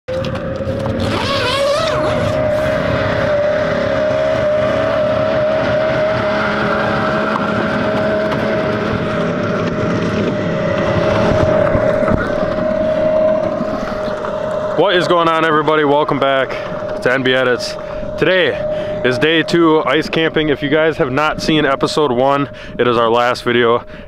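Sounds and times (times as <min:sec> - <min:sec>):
snowmobile engine running: 0:00.1 - 0:23.8.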